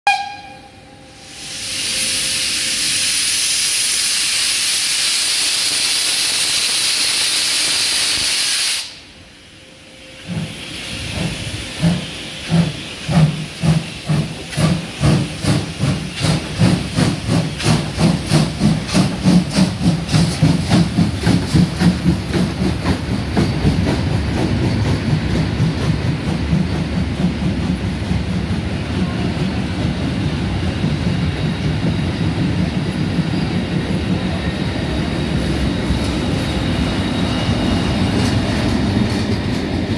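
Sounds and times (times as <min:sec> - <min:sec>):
train coaches rolling by: 0:00.1 - 0:39.9
steam hissing: 0:01.0 - 0:39.9
steam locomotive chuffing: 0:01.1 - 0:09.1, 0:10.1 - 0:39.9.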